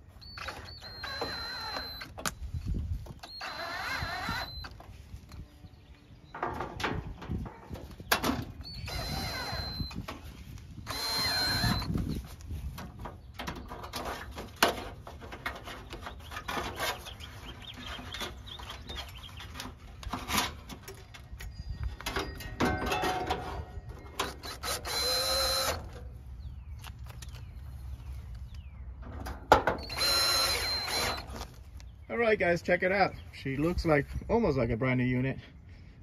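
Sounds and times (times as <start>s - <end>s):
cordless drill driving screws: 0.2s - 2.2s, 3.3s - 4.8s, 8.6s - 10.0s, 10.8s - 12.2s, 24.2s - 26.0s, 29.8s - 31.5s
metal panels clanking: 22.0s - 24.4s.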